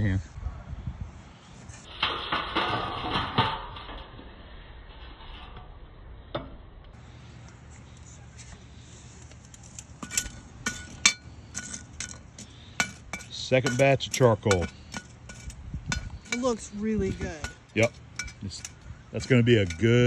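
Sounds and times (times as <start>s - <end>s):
charcoal clattering: 1.8s - 4.1s, 9.3s - 20.0s
charcoal clinking on iron: 9.5s - 16.7s, 17.4s - 20.0s.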